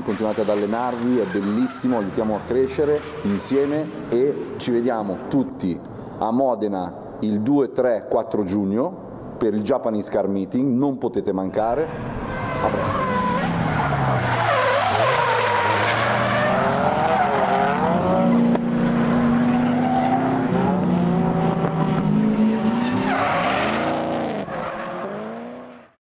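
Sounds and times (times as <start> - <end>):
tyres screeching: 0.0 - 4.1, 11.6 - 18.5
car engines revving: 0.0 - 4.6, 11.6 - 26.0.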